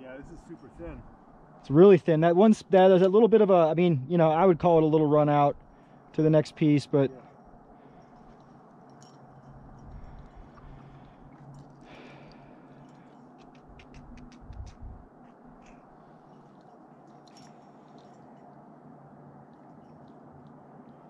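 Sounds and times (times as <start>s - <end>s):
light clicks of climbing hardware: 8.0s - 18.4s.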